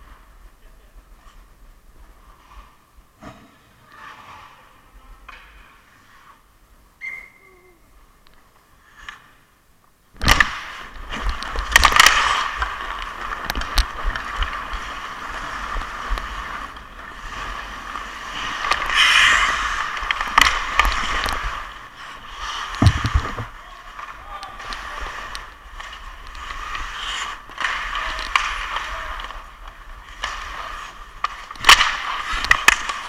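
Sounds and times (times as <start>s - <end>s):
skates scraping on ice: 0.0s - 6.5s, 10.4s - 33.0s
hockey stick clicking on ice: 10.2s - 33.0s
wind rumbling on microphone: 22.8s - 23.5s.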